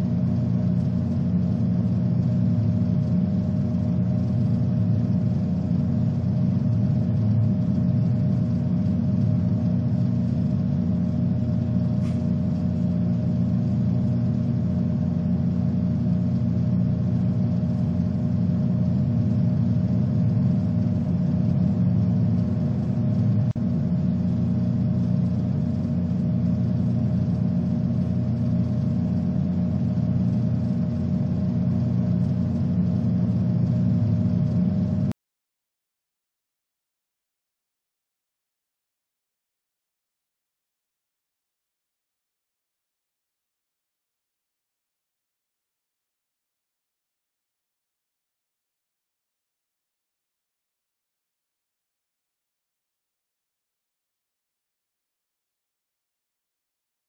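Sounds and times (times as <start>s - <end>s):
low mechanical hum: 0.0s - 35.2s.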